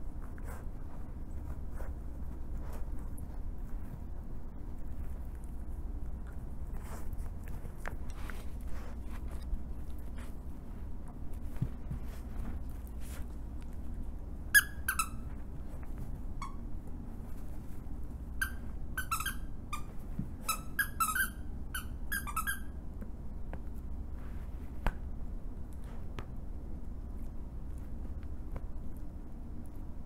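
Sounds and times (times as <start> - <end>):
dog toy squeaking: 14.5 - 15.3, 18.4 - 22.8.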